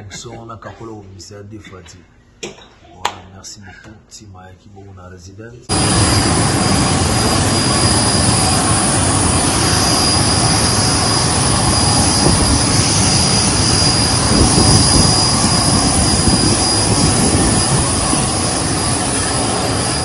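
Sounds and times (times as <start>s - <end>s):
jet turbine noise: 5.7s - 20.0s.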